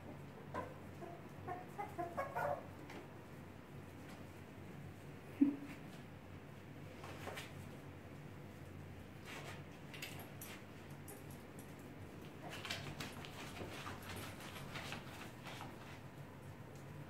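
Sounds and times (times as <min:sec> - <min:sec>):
puppies yipping and squeaking: 0:01.5 - 0:02.7.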